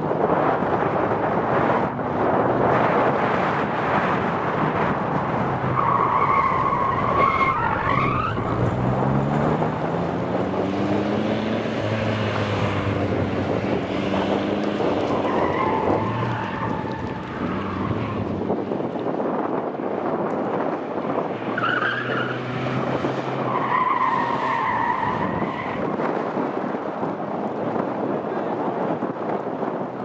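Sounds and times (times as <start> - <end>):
car engine revving: 1.6 - 18.8, 21.1 - 26.2
tyres squealing: 14.9 - 18.3.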